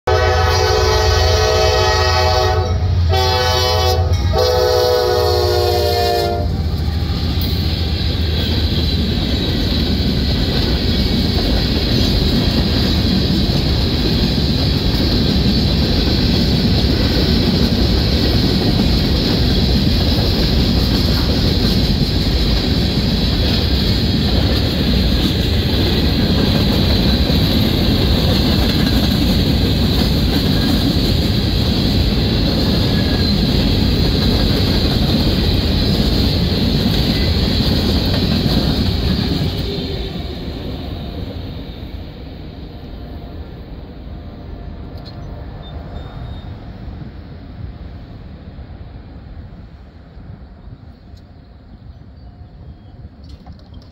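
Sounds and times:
locomotive air horn blasts: 0.0s - 7.6s
train wheels rattling on rail: 0.1s - 53.9s.

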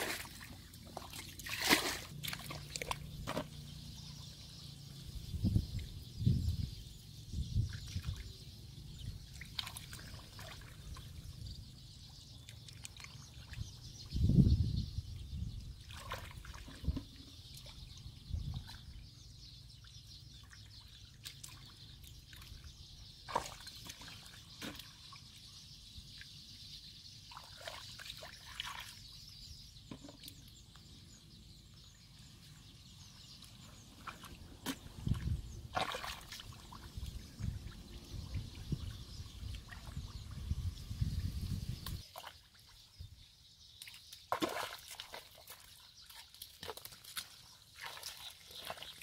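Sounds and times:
splashing in muddy water: 0.0s - 3.7s, 9.2s - 11.3s, 12.5s - 13.8s, 15.8s - 17.9s, 20.4s - 25.4s, 27.2s - 29.2s, 33.4s - 40.4s, 41.8s - 42.8s, 43.8s - 49.0s.

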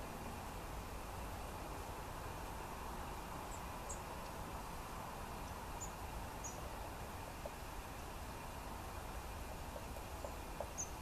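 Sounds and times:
outdoor rumble and hiss: 0.0s - 11.0s
faint high bird calls: 5.4s - 6.7s, 9.8s - 11.0s.

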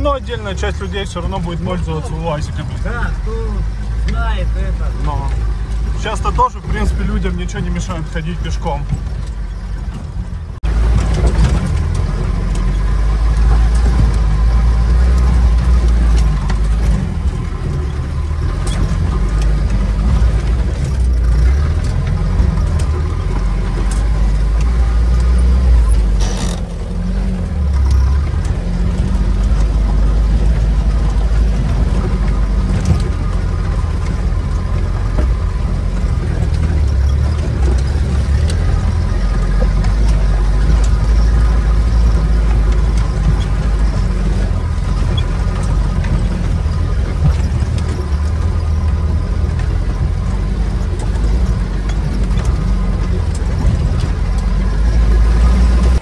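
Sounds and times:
knocks and rattles from bumps: 0.0s - 56.0s
vehicle engine and road rumble: 0.0s - 56.0s.

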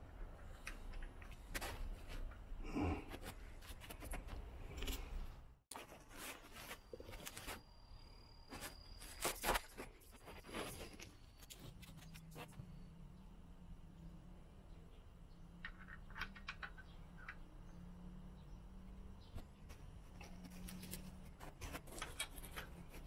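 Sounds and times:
light clicks and scrapes of parts: 0.0s - 7.7s, 8.5s - 12.7s, 15.6s - 17.6s, 19.4s - 23.0s.

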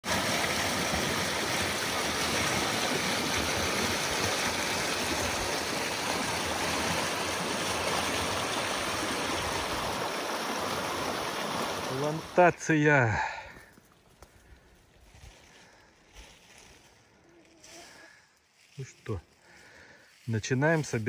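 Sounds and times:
creek water rushing: 0.0s - 13.6s.

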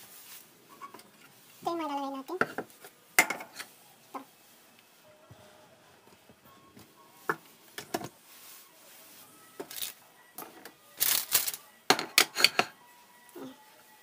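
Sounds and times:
dishes clicking on counter: 11.9s - 12.8s.

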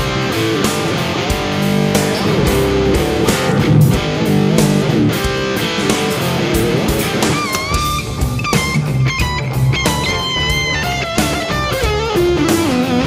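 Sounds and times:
bass guitar: 0.0s - 13.0s
electric guitar: 0.0s - 13.0s
steady drum beat: 1.9s - 6.9s.

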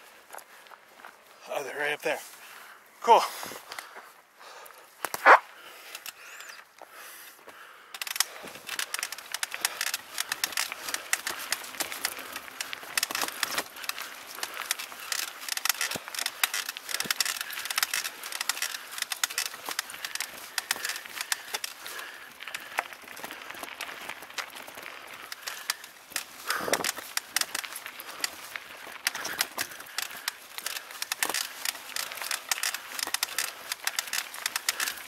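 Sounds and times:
tyres crunching over dirt: 0.0s - 35.0s
bike rattling: 7.6s - 35.0s.

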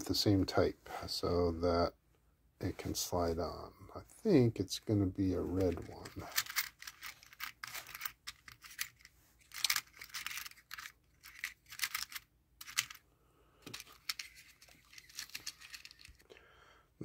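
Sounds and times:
crimp terminals clicking and rattling: 6.0s - 13.0s, 13.6s - 16.3s.

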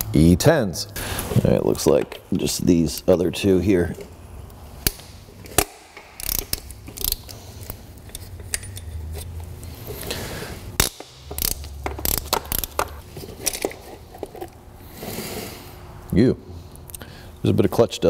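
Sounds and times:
metal clinks of socket and bolts: 4.8s - 9.0s, 10.8s - 14.4s
hand ratchet clicking: 4.8s - 9.3s, 10.8s - 13.8s.

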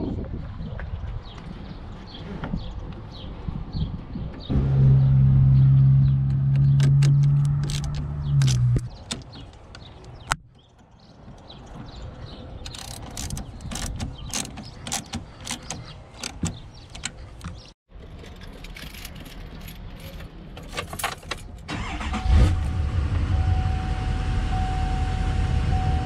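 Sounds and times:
ratchet wrench clicking: 12.7s - 16.4s.

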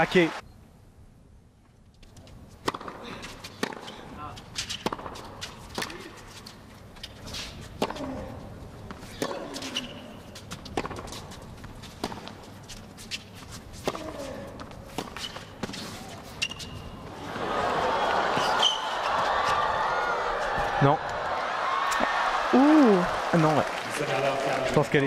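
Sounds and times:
crowd noise: 0.0s - 0.4s, 17.0s - 25.0s
racket striking tennis ball: 2.6s - 4.0s, 4.6s - 6.1s, 10.7s - 11.2s.

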